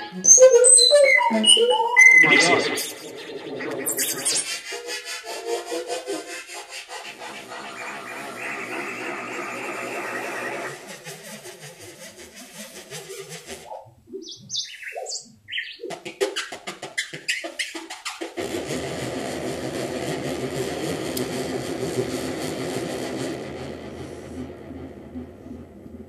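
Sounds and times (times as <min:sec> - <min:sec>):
noisy sustained synth sound: 0:00.0 - 0:11.2, 0:18.4 - 0:26.0
synthesizer stepping notes: 0:00.0 - 0:11.5, 0:17.2 - 0:26.0.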